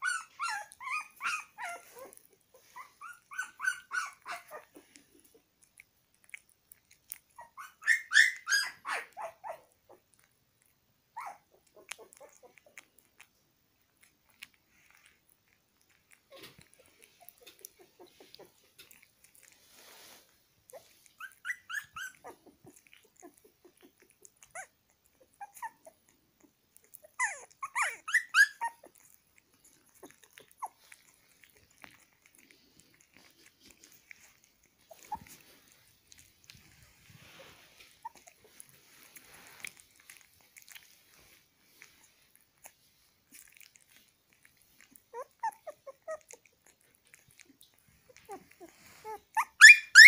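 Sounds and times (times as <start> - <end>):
puppy squeaks: 0.0 - 5.0, 7.3 - 9.7, 11.2 - 12.8, 20.7 - 26.0, 26.8 - 32.1, 33.2 - 41.3, 44.8 - 50.0
puppy licking and smacking: 0.0 - 50.0.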